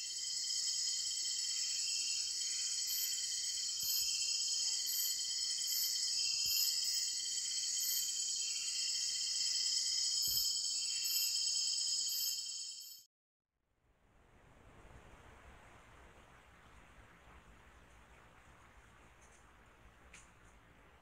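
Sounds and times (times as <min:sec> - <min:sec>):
high-pitched insect drone: 0:00.0 - 0:13.0
insect chirping calls: 0:00.0 - 0:13.0.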